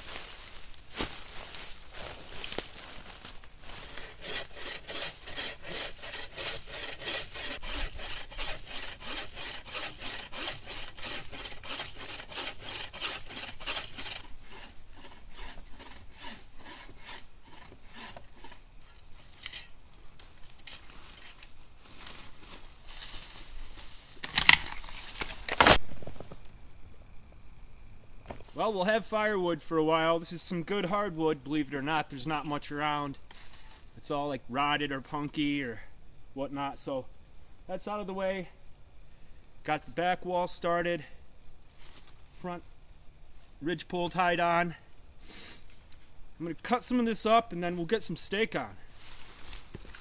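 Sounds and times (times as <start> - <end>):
hand saw cutting wood: 3.7 - 19.7
trunk cracking: 24.2 - 26.6.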